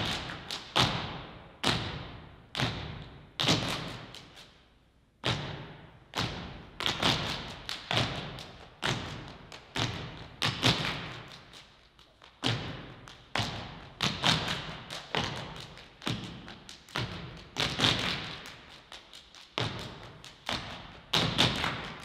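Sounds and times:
echoing percussive thumps and slaps: 0.0s - 4.6s, 5.2s - 22.0s.

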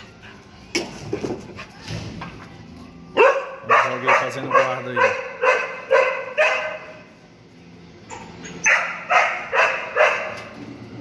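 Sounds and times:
dog barking: 3.2s - 7.0s, 8.6s - 10.5s.

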